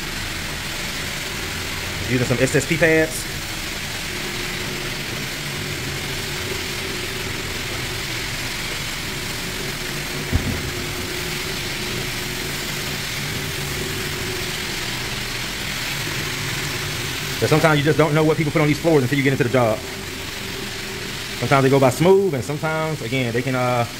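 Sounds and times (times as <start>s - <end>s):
pad scrubbing floor: 0.0s - 23.4s
floor buffer motor hum: 0.0s - 23.9s
short low bump: 10.3s - 11.6s.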